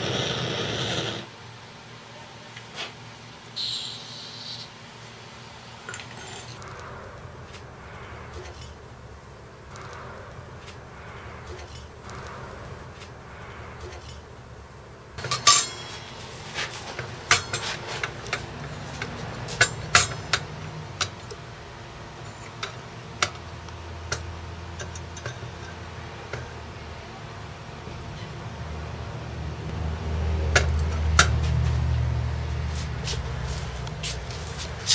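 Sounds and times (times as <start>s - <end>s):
metal clinking on steel pan: 15.2s - 16.2s.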